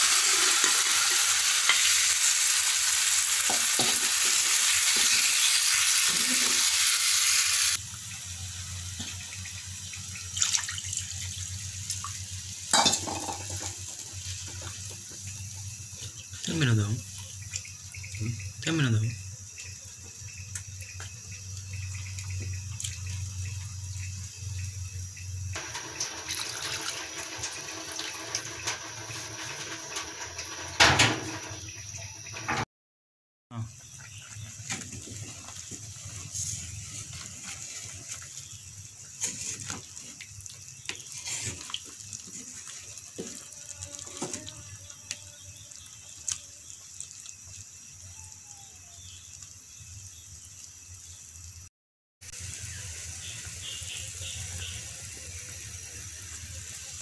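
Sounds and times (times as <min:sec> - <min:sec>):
curry bubbling and sloshing: 0:33.9 - 0:44.6.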